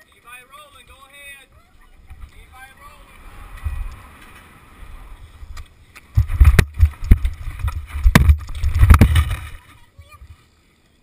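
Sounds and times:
low wind rumble: 1.6s - 9.6s
thumps and knocks of crash: 6.2s - 9.6s.

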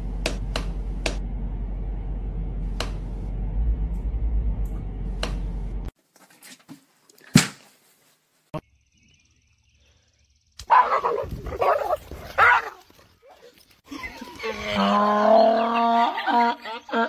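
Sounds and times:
low rumbling hum: 0.0s - 5.9s
dog barking: 10.6s - 13.5s.

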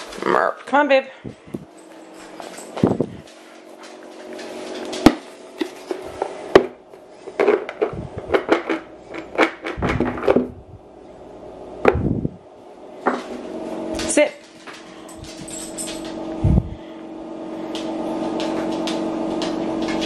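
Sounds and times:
dog biscuits rattling: 14.4s - 16.2s.

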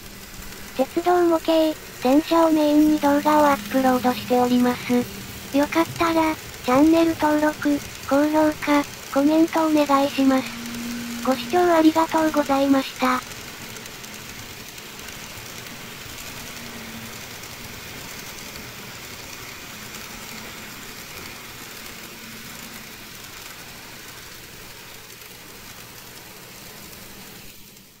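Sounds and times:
model train running on track: 0.0s - 28.0s.

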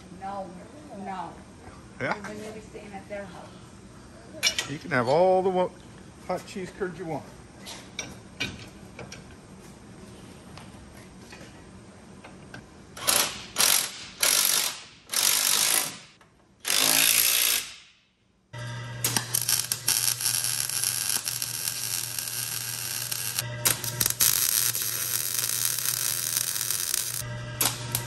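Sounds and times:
welder crackling and buzzing: 13.0s - 17.8s, 18.6s - 28.0s
power tool bursts: 18.6s - 28.0s.

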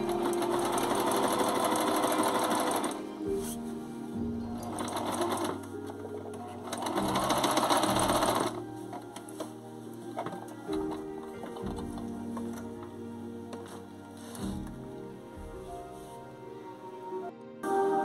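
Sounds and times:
sewing machine stitching: 0.0s - 3.1s, 4.6s - 8.6s.

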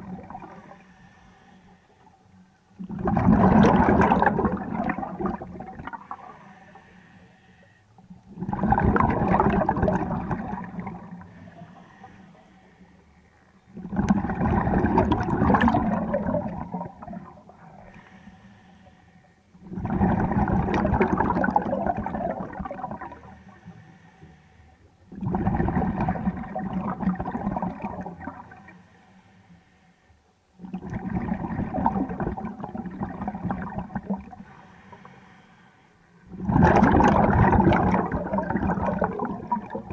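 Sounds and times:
scuba regulator exhaled bubbles: 2.8s - 6.4s, 8.3s - 11.4s, 13.7s - 17.7s, 19.6s - 23.4s, 25.1s - 28.7s, 30.6s - 34.4s, 36.3s - 39.9s.

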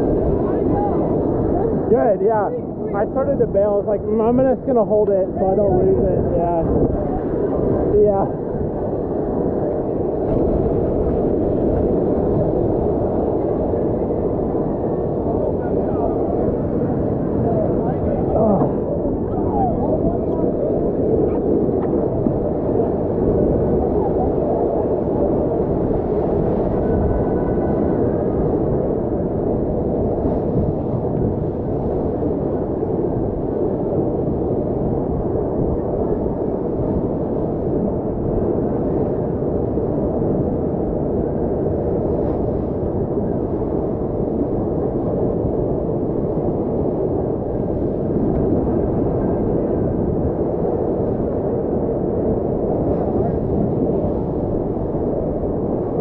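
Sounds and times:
rush of fast-flowing water: 0.0s - 38.6s.

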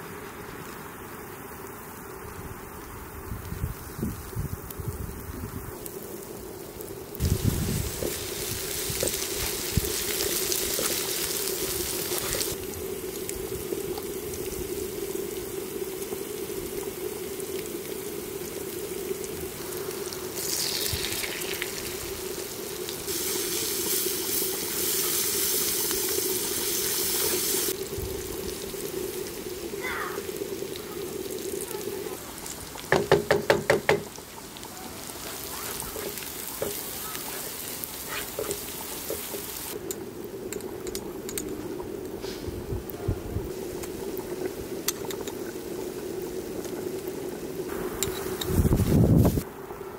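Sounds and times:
onions sizzling in oil: 0.0s - 49.9s
wooden spoon stirring: 35.2s - 39.6s.

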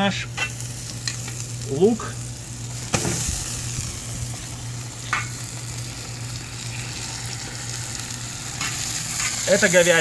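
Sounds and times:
meat sizzling: 0.0s - 10.0s
meat hitting hot oil: 2.8s - 4.0s, 4.9s - 5.5s.

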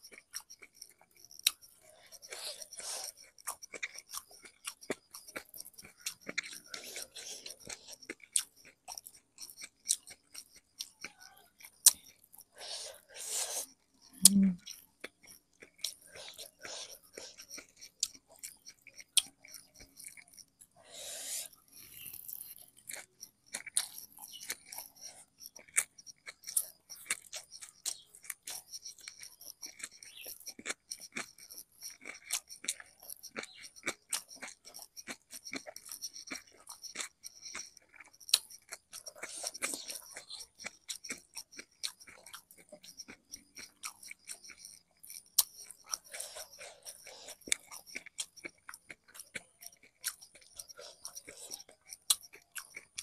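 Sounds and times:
person chewing crunchy food: 0.0s - 53.0s
mouth clicks: 12.6s - 14.7s.

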